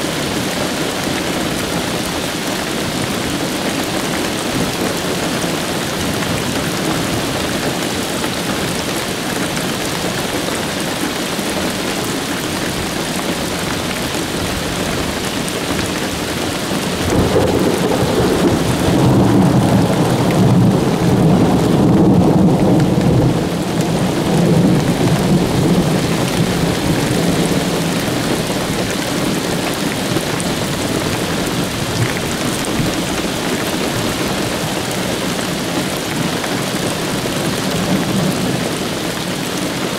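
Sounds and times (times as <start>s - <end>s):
steady rain falling: 0.0s - 39.9s
thunder rumbling: 16.8s - 39.0s.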